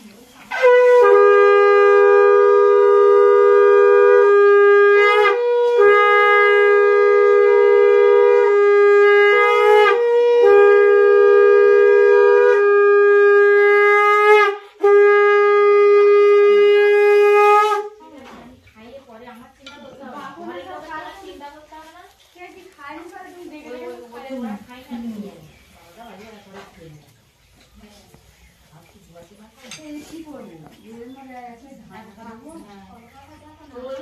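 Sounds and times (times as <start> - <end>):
conch shells blown: 0.5 - 18.0.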